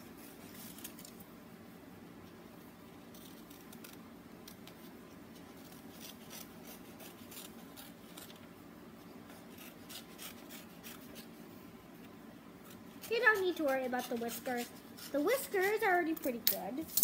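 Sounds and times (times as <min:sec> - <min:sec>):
scissors snipping paper: 0:03.1 - 0:08.4, 0:09.3 - 0:11.3, 0:12.7 - 0:17.0.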